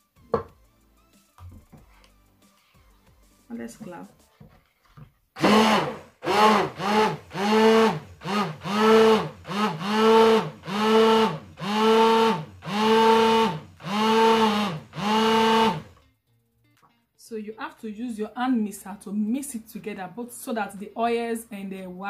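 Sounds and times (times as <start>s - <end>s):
stick blender motor pulsing: 5.4s - 16.0s.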